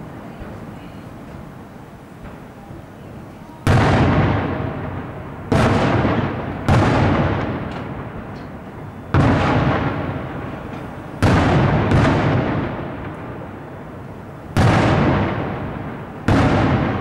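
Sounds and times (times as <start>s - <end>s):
firework shells bursting: 3.6s - 17.0s.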